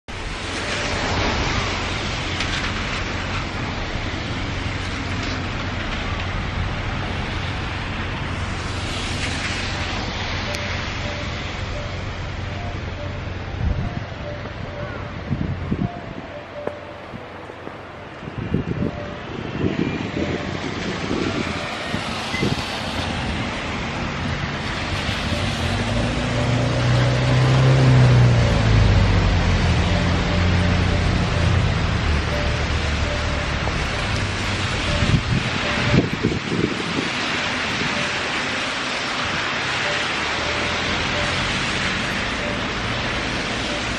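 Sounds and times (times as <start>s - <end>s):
engines running: 0.1s - 43.9s
road traffic hiss: 0.1s - 43.9s
wind buffeting microphone: 13.6s - 32.0s, 33.6s - 38.5s
low engine hum: 23.1s - 43.9s.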